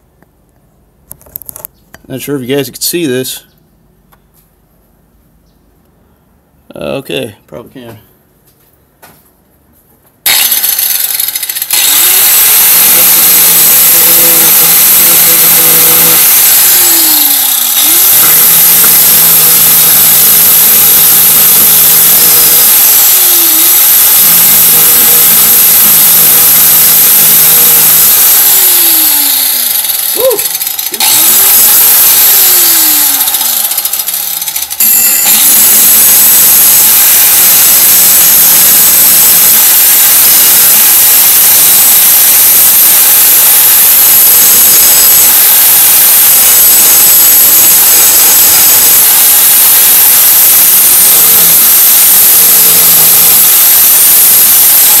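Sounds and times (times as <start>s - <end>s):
angle grinder grinding steel: 10.3s - 55.0s.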